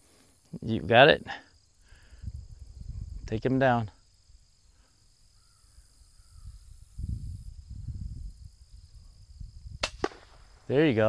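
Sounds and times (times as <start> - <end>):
low rumbling microphone noise: 1.8 - 4.2, 6.2 - 11.0
high-pitched insect drone: 4.0 - 9.8
faint bird call: 5.2 - 6.8.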